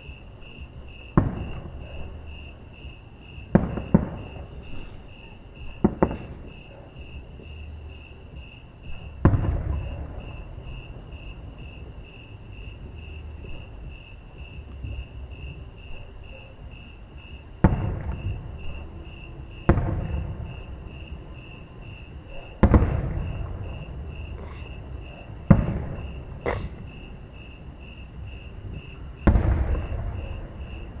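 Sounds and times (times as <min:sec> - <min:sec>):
crickets chirping: 0:00.0 - 0:31.0
distant firework booms: 0:00.5 - 0:07.6, 0:08.2 - 0:31.0
firework crackle: 0:28.4 - 0:31.0.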